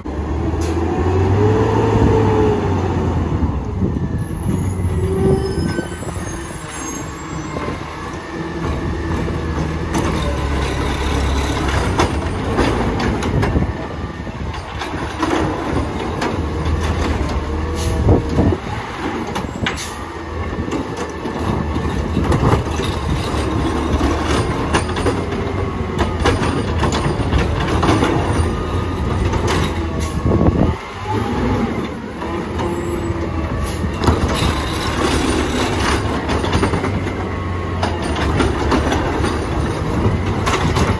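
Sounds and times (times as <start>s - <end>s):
brake squeaks: 4.3s - 7.8s.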